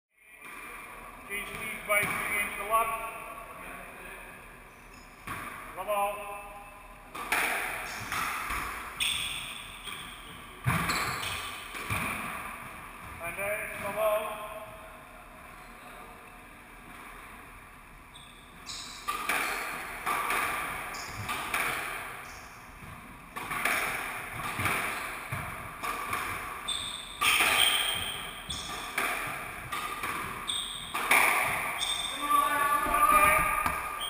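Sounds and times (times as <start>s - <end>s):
squash ball cracking off rackets: 7.1s - 8.9s, 19.1s - 22.2s, 23.3s - 26.6s, 27.2s - 31.9s
shoes squeaking on wooden floor: 9.0s - 12.0s, 18.1s - 19.7s, 20.8s - 21.6s, 24.4s - 34.0s.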